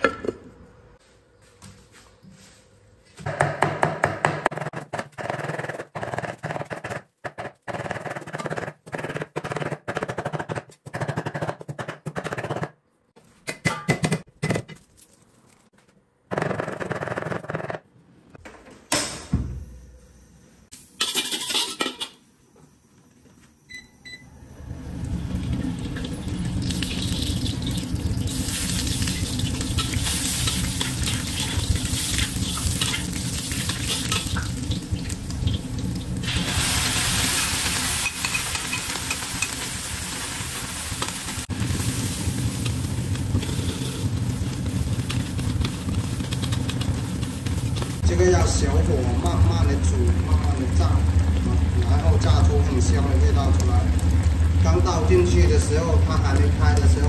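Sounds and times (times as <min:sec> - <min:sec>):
oil sizzling in a wok: 0:20.7 - 0:22.3, 0:24.3 - 0:57.0.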